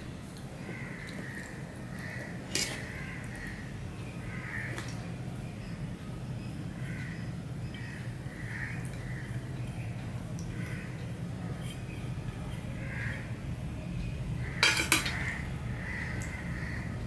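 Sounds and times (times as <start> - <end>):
steady low hum: 0.0 - 17.0
crows cawing: 0.6 - 5.0, 6.7 - 9.4, 10.5 - 11.1, 12.8 - 13.3, 14.4 - 17.0
steel dishes clinking: 14.6 - 15.2.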